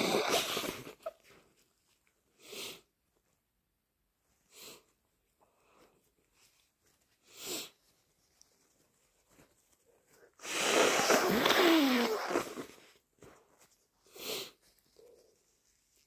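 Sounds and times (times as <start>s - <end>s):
person sniffing: 0.0s - 1.1s, 10.4s - 12.8s, 14.0s - 15.2s
person blowing nose: 0.0s - 1.2s, 10.4s - 12.9s.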